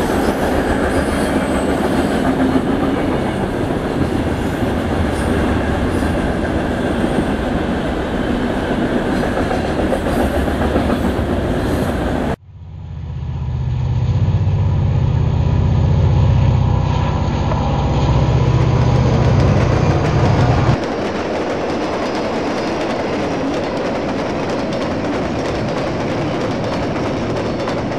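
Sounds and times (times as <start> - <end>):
model locomotive low hum: 7.4 - 21.2
model train cars rattling: 17.1 - 27.9.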